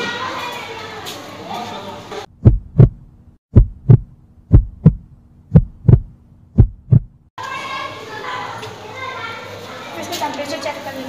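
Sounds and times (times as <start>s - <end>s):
classroom noise: 0.0s - 2.3s, 7.4s - 11.0s
heartbeat lub-dub: 2.3s - 7.3s.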